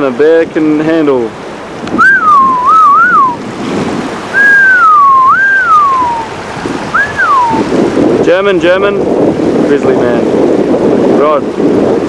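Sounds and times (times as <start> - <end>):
person whistling a tune: 2.0 - 3.4, 4.4 - 6.3, 6.9 - 7.6.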